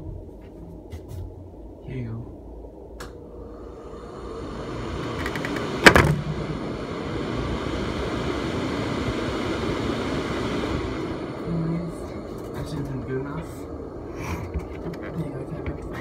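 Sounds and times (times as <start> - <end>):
exhaust fan running: 0.0 - 16.0
sharp knock: 5.8 - 6.3.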